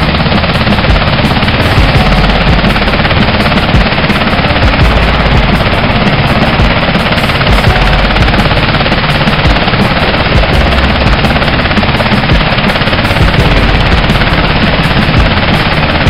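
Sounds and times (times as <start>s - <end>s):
helicopter rotor chopping: 0.0s - 16.0s.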